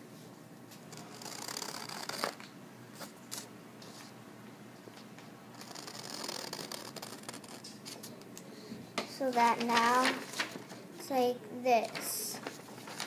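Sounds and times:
scissors cutting paper: 0.9 - 2.4, 5.6 - 8.0
paper rustling: 9.3 - 10.9, 11.8 - 13.0.

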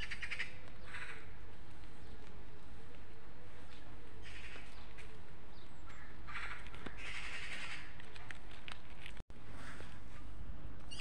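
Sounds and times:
birds calling: 0.0 - 2.3, 3.6 - 8.0.

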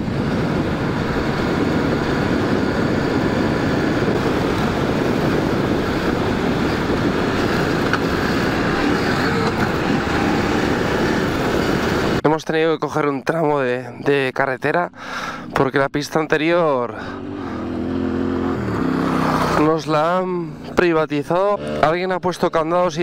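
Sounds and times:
motorcycle engine: 0.0 - 12.2, 17.0 - 22.1
wind buffeting microphone: 0.0 - 12.2.

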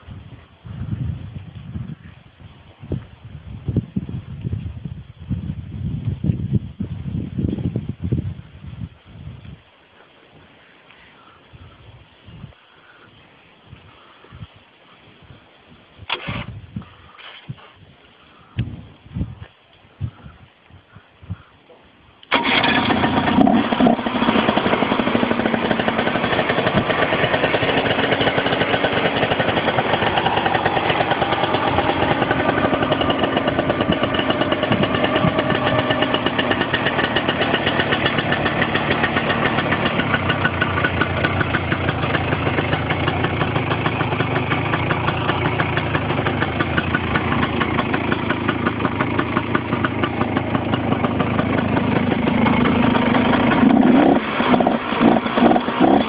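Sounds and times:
two-stroke engine idling: 22.3 - 56.0.

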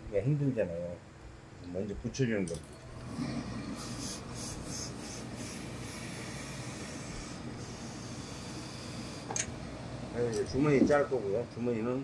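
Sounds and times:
iron sliding over fabric: 2.8 - 9.4.

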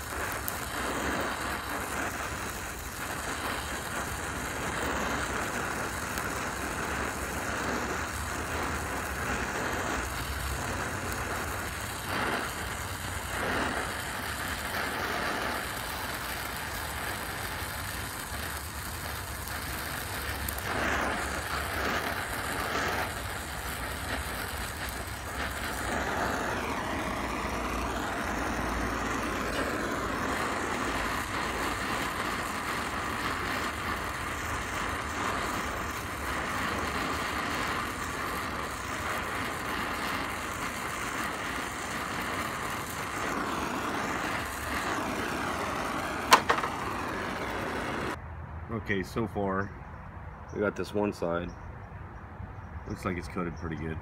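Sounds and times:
torch flame hissing: 0.0 - 48.2
sharp pop: 46.2 - 46.8.

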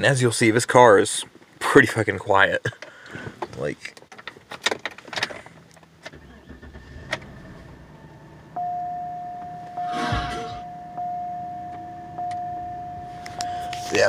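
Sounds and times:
car engine starting and idling: 4.6 - 14.0
dashboard warning chime: 8.0 - 14.0.

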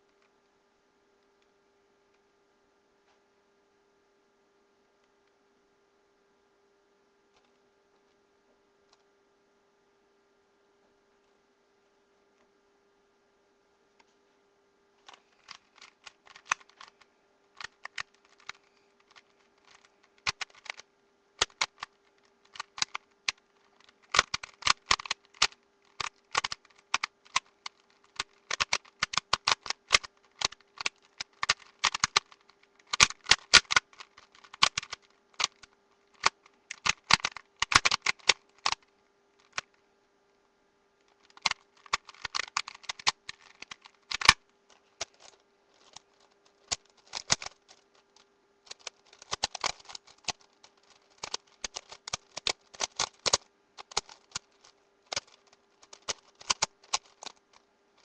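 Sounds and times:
faint steady hum: 0.0 - 58.0
puzzle cube clicking: 15.0 - 39.8, 41.1 - 57.5.

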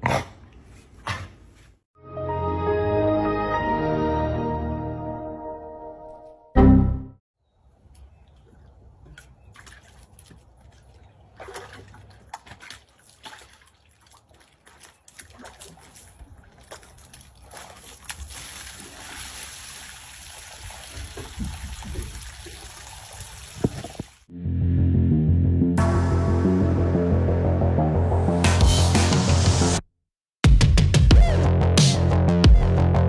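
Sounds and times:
water trickling over tub: 7.9 - 24.2
dog splashing in water: 8.4 - 24.0.

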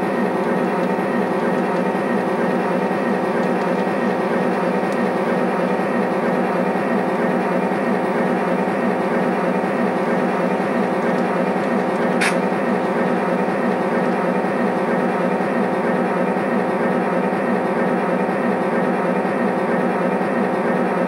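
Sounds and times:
model train running on track: 0.0 - 21.0
sharp high click: 12.2 - 12.4.

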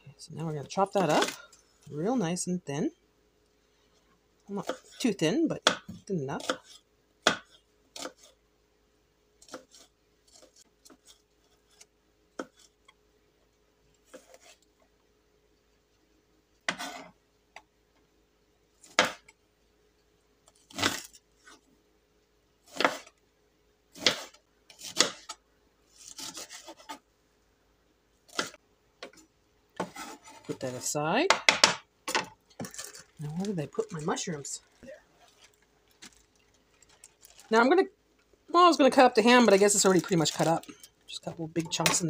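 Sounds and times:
knife chopping on wooden board: 5.6 - 8.2, 22.7 - 23.1, 24.0 - 25.3.

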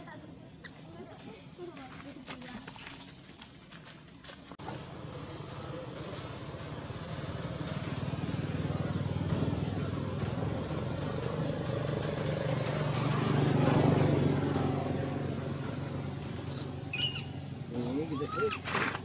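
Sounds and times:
vehicle engine passing by: 4.6 - 19.0.

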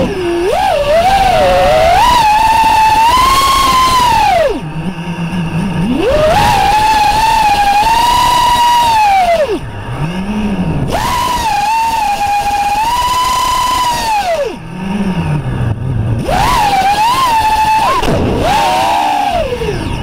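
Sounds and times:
quadcopter motors whining: 0.0 - 20.0.

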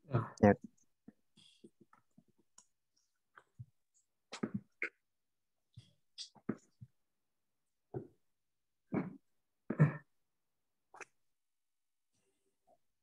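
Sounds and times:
faint clicks and taps: 0.6 - 4.6.

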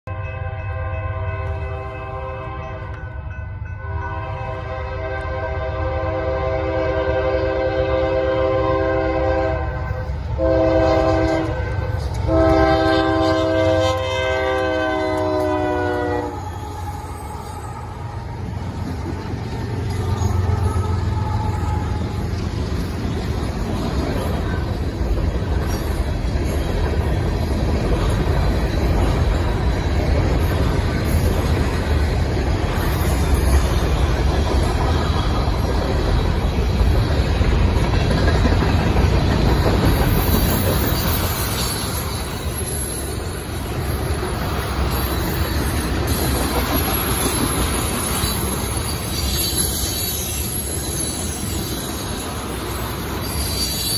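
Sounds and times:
train horn blasts: 0.0 - 18.4, 20.2 - 22.4
diesel locomotives rumbling: 0.0 - 53.9
freight cars clattering on rails: 18.4 - 53.9.

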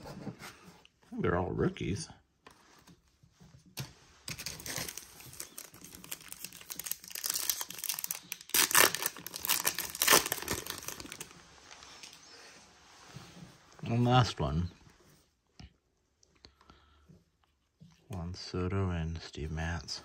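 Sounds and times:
foil wrapper crinkling: 4.2 - 11.4
foil wrapper ripping: 4.3 - 11.3.

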